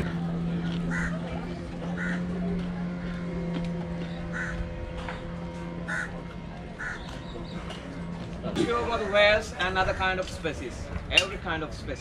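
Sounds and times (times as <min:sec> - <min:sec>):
boat engine idling: 0:00.0 - 0:12.0
crows cawing: 0:00.9 - 0:01.2, 0:01.9 - 0:02.3, 0:04.3 - 0:04.7, 0:05.9 - 0:06.2, 0:06.8 - 0:07.3.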